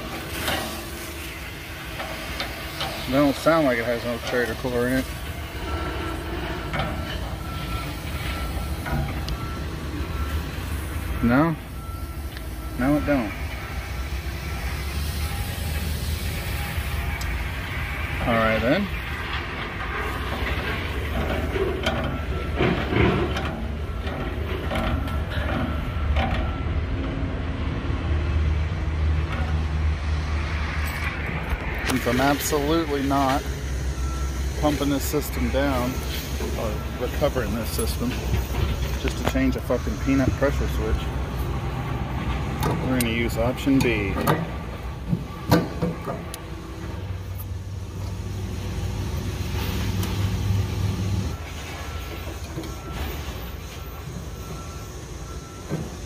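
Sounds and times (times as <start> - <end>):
condenser fan rushing: 0.0 - 11.5
compressor low hum: 0.0 - 51.4
condensing unit humming: 42.5 - 51.4.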